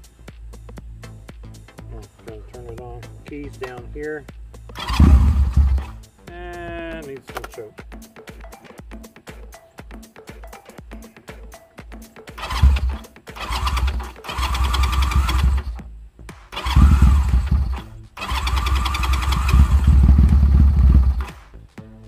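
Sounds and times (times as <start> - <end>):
electric starter cranking engine: 4.7 - 6.0, 12.4 - 15.8, 16.5 - 21.4.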